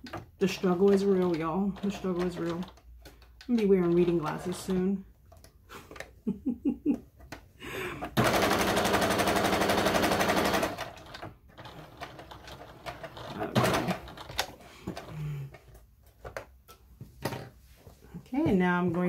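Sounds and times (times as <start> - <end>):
sewing machine stitching: 0.0 - 4.9, 8.0 - 14.6.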